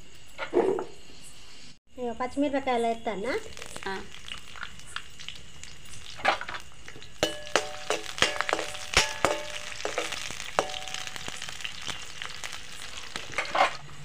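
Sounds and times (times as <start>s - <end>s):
chillies sizzling in hot oil: 2.8s - 14.0s
metal spoon knocking on pan: 7.2s - 11.5s.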